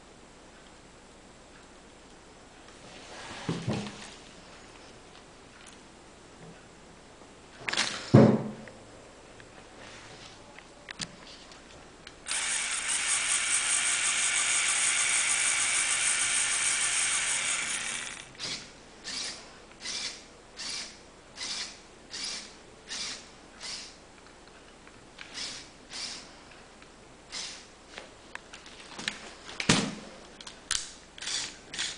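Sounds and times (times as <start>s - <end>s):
plastic gears ratcheting rattle: 12.3s - 18.4s.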